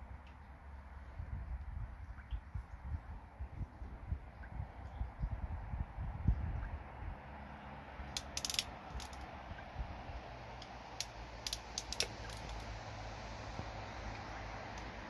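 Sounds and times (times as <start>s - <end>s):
crimping pliers ratcheting clicks: 8.2s - 9.3s, 10.6s - 12.6s.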